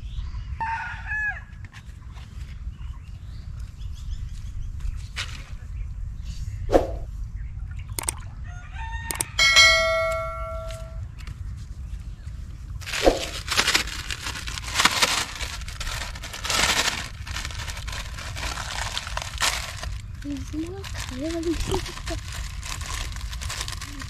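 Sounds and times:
rooster crowing: 0:00.6 - 0:01.5, 0:08.4 - 0:09.8
plastic bag rustling: 0:12.8 - 0:24.0.

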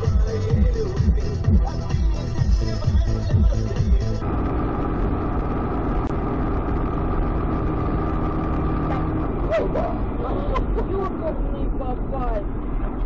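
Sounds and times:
electronic music with steady beat: 0:00.0 - 0:04.2
car engine hum: 0:00.0 - 0:13.0.

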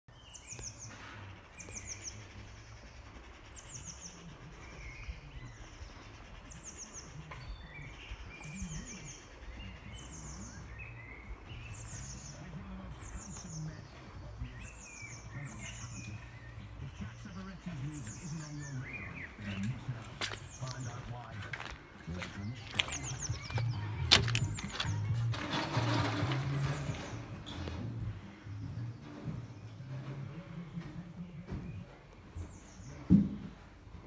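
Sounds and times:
bird singing high phrase: 0:00.1 - 0:25.2
soft bird chirps: 0:00.1 - 0:25.2, 0:26.6 - 0:33.6.

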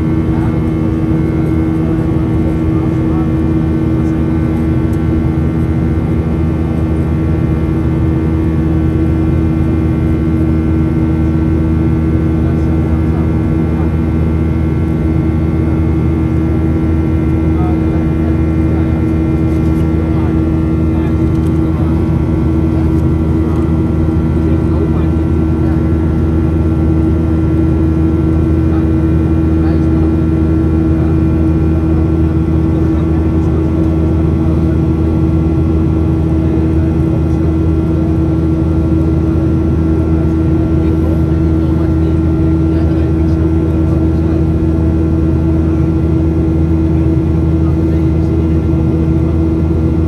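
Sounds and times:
jet engine drone in cabin: 0:00.0 - 0:50.0.

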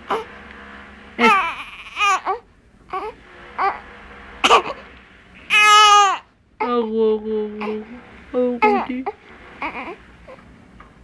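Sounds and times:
infant crying: 0:01.2 - 0:03.8, 0:05.5 - 0:06.8, 0:08.6 - 0:10.4.

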